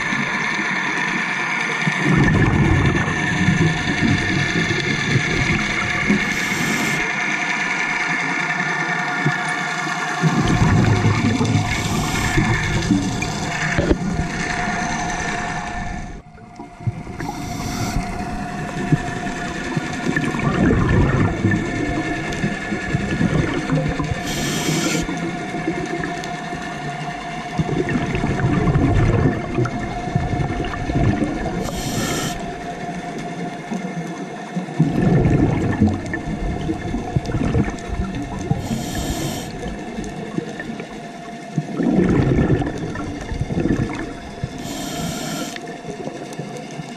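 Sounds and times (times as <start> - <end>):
steady hum: 0.0 - 33.6, 34.8 - 41.4, 42.0 - 45.9
gurgling exhaust bubbles: 1.8 - 7.3, 10.2 - 46.9
regulator inhalation hiss: 6.0 - 7.1, 11.6 - 12.8, 17.2 - 18.6, 24.2 - 25.2, 31.6 - 32.6, 38.5 - 39.7, 44.6 - 45.6.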